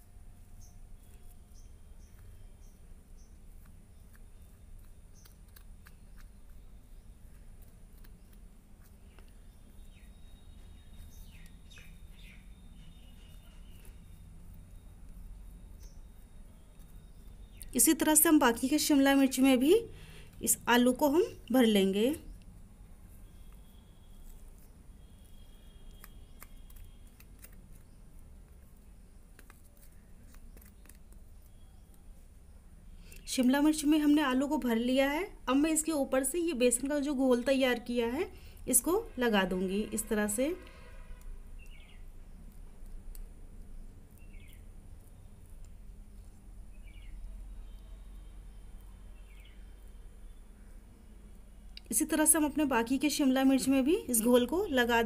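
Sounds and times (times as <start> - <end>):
low steady hum: 0.0 - 55.0
bird chirping: 0.6 - 7.4, 8.1 - 22.5, 23.2 - 34.4, 41.6 - 42.4, 44.1 - 45.5, 46.2 - 51.1.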